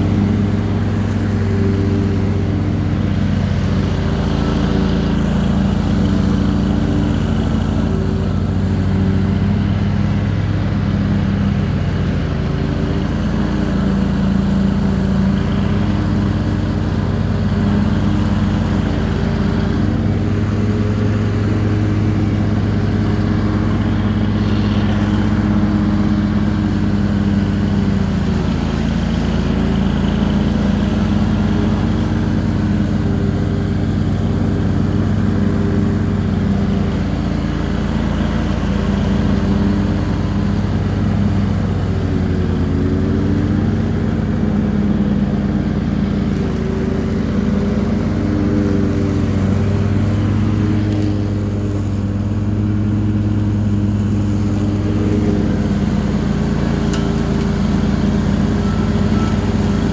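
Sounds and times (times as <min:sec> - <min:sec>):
lawn tractor engine running: 0:00.0 - 0:59.9
mower deck cutting tall grass: 0:00.0 - 0:59.9.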